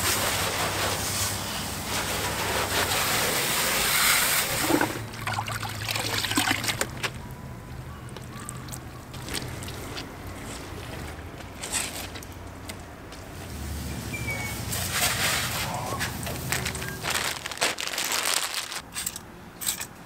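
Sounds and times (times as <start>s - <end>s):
hose spraying water: 0.0s - 5.1s, 13.4s - 18.8s
water trickling: 5.0s - 7.4s.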